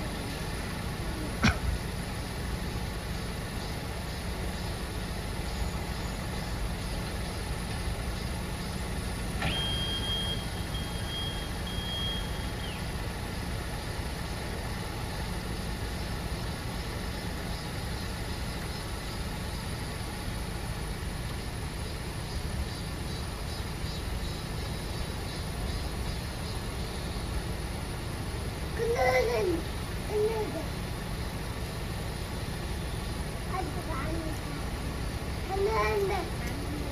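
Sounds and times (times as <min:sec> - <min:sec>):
diesel truck engine idling: 0:00.0 - 0:36.9
high steady beep: 0:09.5 - 0:12.5.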